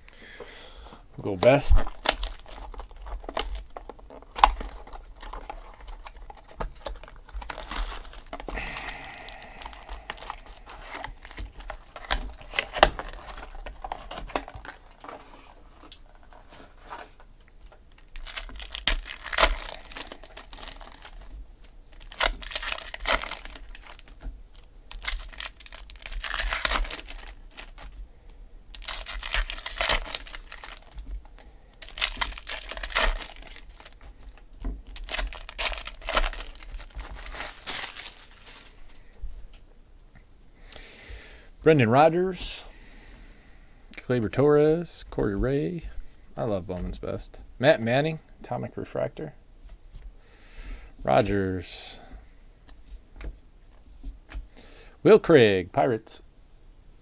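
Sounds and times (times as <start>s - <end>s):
wrappers crinkling and tearing: 1.4s - 28.0s, 28.7s - 39.1s.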